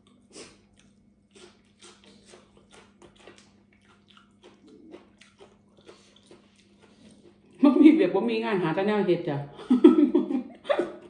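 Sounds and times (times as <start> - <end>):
person chewing with wet mouth clicks: 0.0 - 7.6
low steady hum: 0.0 - 11.0.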